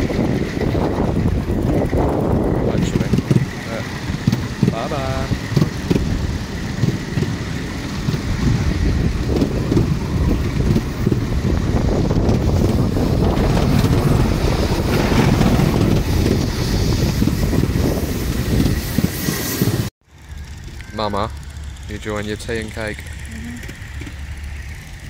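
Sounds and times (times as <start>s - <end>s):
railway carriage rumbling on track: 0.0s - 25.0s
wind buffeting microphone: 0.0s - 25.0s.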